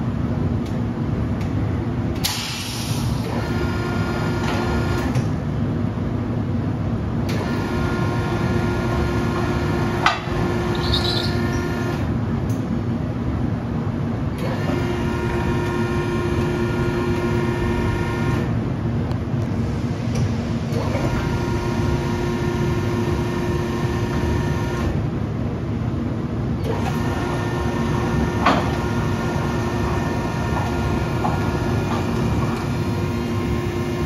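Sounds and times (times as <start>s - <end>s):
machine mechanical hum: 0.0s - 34.0s
drive motor whine: 26.7s - 34.0s.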